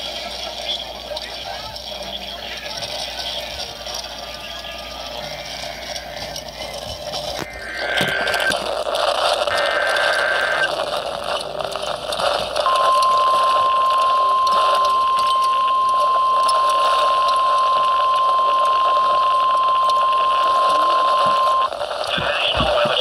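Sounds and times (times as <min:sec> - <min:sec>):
radio static: 0:00.0 - 0:23.0
digital header data burst: 0:02.7 - 0:23.0
high-pitched alarm tone: 0:07.4 - 0:10.7, 0:12.5 - 0:21.7.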